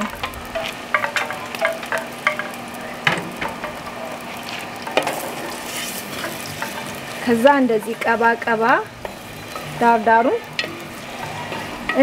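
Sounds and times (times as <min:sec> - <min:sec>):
onions sizzling in oil: 0:00.0 - 0:12.0
wooden spoon scraping pot: 0:04.5 - 0:12.0.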